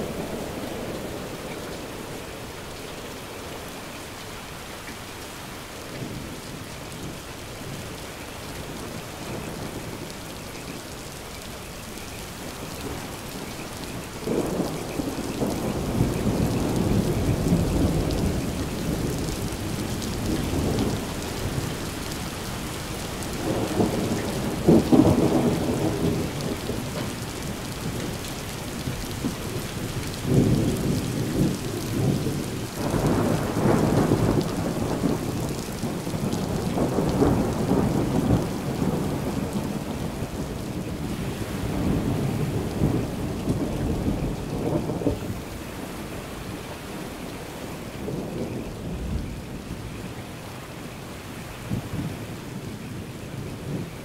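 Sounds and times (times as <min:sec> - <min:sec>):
steady rain falling: 0:00.0 - 0:54.0
thunder rumbling: 0:13.8 - 0:50.3, 0:51.6 - 0:54.0.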